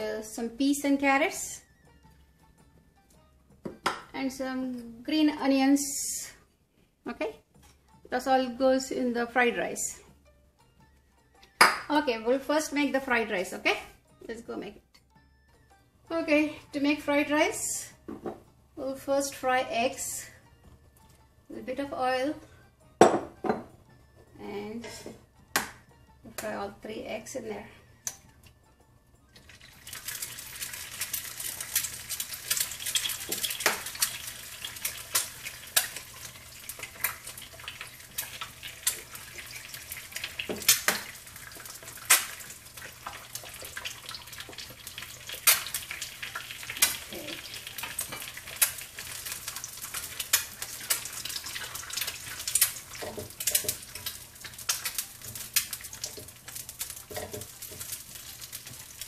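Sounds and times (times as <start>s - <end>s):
eggs sizzling in oil: 16.1s - 59.0s
crackles and pops: 29.4s - 59.0s.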